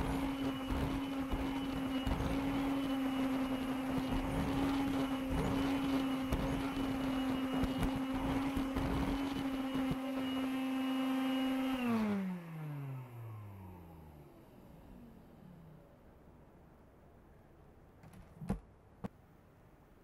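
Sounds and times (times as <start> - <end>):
vacuum nozzle rumbling over carpet: 0.0 - 15.2
vacuum motor whine: 0.0 - 15.9.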